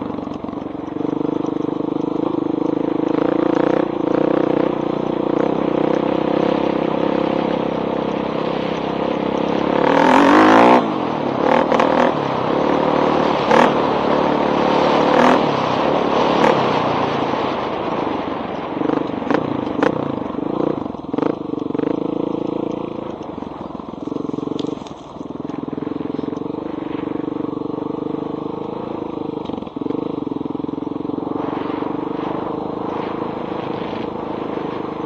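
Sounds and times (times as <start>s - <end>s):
dirt bike engine revving: 0.0s - 17.4s, 18.8s - 23.1s.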